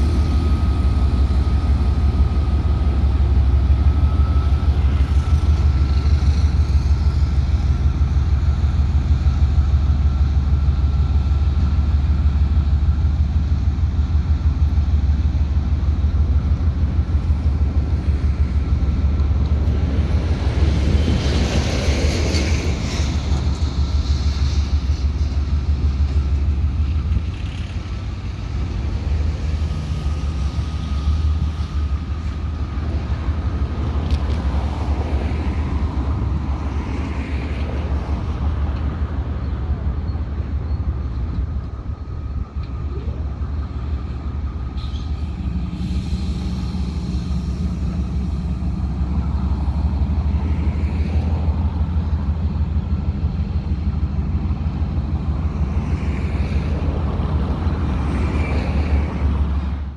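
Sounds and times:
higher engine tone: 0:00.0 - 0:07.1
locomotive engine hum: 0:00.0 - 0:59.9.

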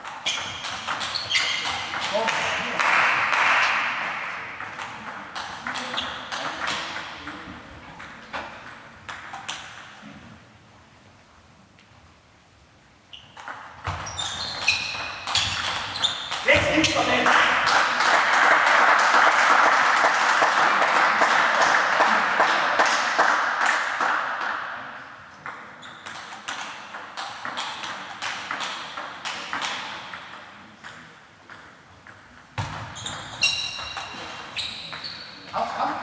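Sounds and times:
table tennis balls clicking: 0:00.0 - 0:02.2, 0:04.2 - 0:10.0, 0:25.4 - 0:35.1.

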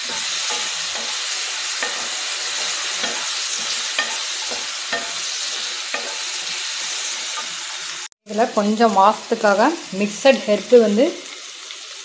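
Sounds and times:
wooden spatula scraping pan: 0:00.0 - 0:07.7
vegetables sizzling in oil: 0:00.0 - 0:12.0.

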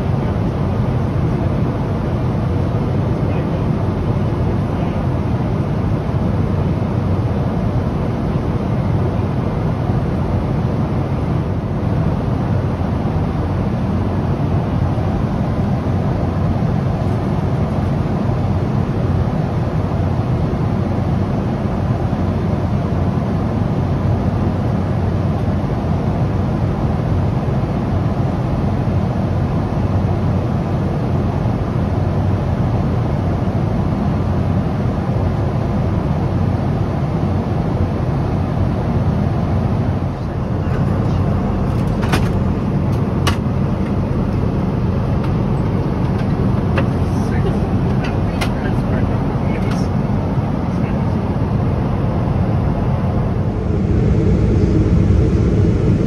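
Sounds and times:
airplane cabin roar: 0:00.0 - 0:56.0.

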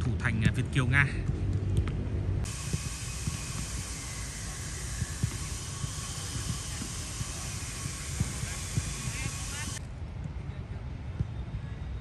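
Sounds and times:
steady hiss: 0:02.4 - 0:09.8.

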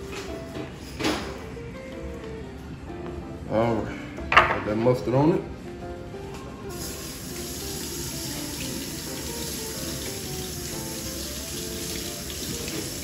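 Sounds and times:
faucet running into a steel sink: 0:06.8 - 0:13.0.

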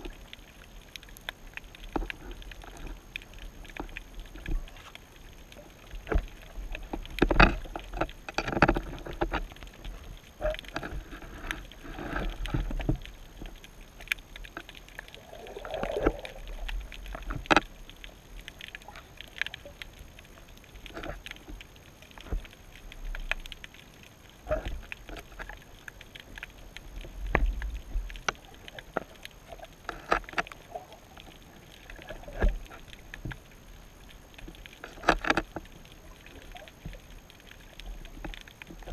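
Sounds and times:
crab clicking and knocking on rig: 0:05.9 - 0:19.8, 0:34.4 - 0:35.7
underwater sea swell surges: 0:15.0 - 0:17.0.

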